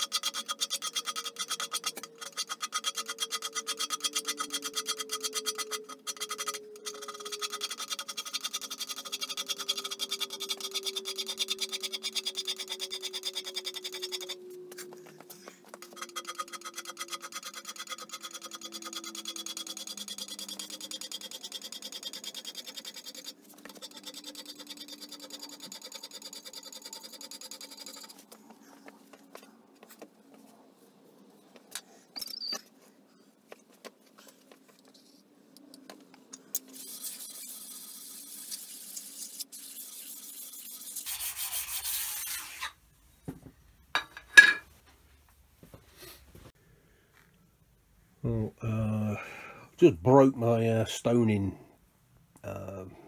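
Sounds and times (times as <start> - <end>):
stone rubbing on cast iron: 15.6 - 28.4, 36.6 - 42.8.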